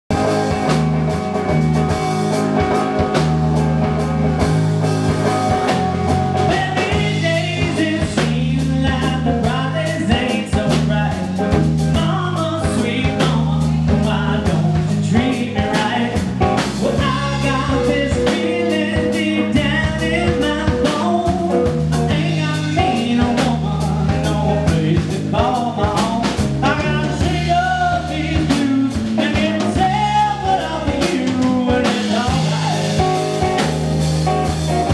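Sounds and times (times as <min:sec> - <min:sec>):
blues band playing: 0:00.1 - 0:34.9
wavering electric guitar lead: 0:00.1 - 0:34.9
man singing: 0:06.3 - 0:33.7.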